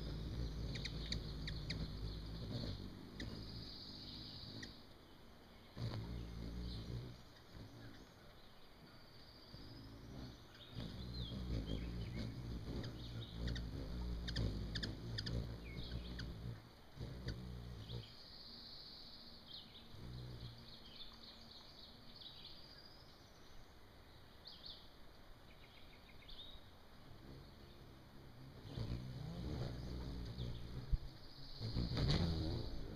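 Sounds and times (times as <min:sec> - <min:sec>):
high bird chips and chirps: 0:00.0 - 0:04.8, 0:05.7 - 0:23.6
hummingbird wingbeats humming: 0:00.0 - 0:32.9.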